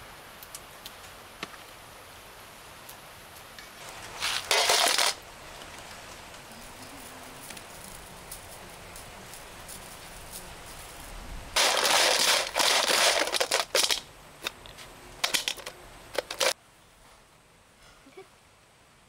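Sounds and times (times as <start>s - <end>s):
scorpion shells rustling in basin: 4.1s - 5.8s, 6.6s - 16.6s.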